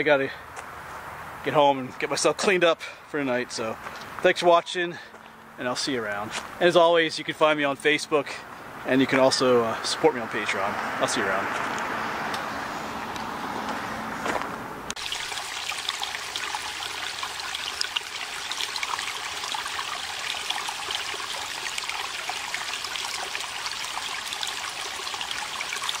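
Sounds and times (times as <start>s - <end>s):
outdoor background noise: 0.0s - 26.0s
stream splashing over rocks: 14.9s - 26.0s.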